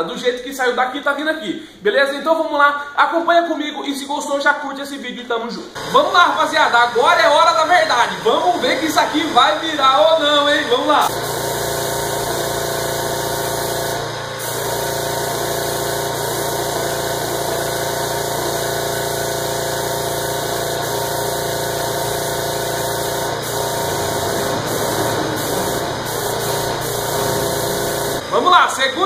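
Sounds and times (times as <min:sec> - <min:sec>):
spray gun hissing: 0:05.8 - 0:28.4
air compressor running: 0:05.8 - 0:29.0.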